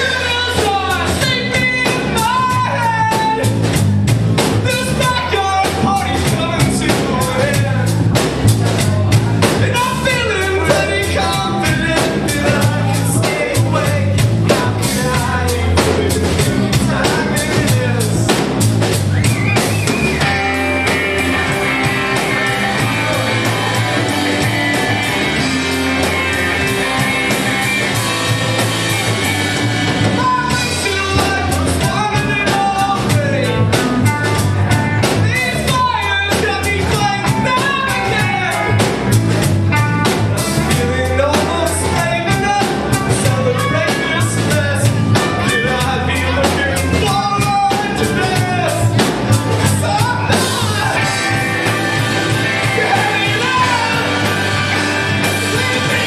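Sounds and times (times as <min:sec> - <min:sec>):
person singing: 0:00.0 - 0:03.6, 0:04.7 - 0:18.5, 0:28.8 - 0:39.2, 0:49.6 - 0:56.0
bass line: 0:00.0 - 0:56.0
drum kit: 0:00.0 - 0:56.0
electric guitars: 0:00.0 - 0:56.0.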